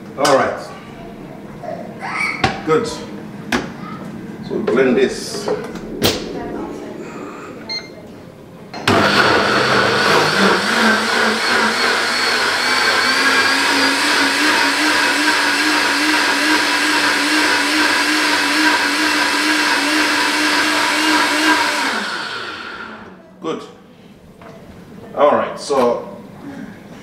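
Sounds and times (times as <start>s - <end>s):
blender motor running: 8.8s - 23.1s.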